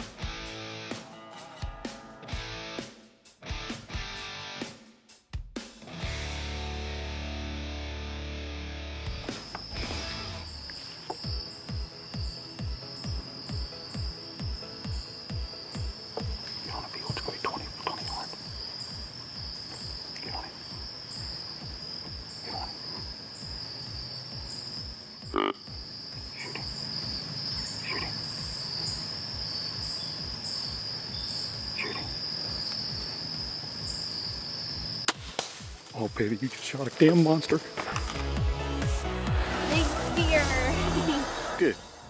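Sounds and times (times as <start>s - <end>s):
pulsing background music: 0.0s - 31.5s, 37.1s - 42.0s
crickets chirping: 9.0s - 42.0s.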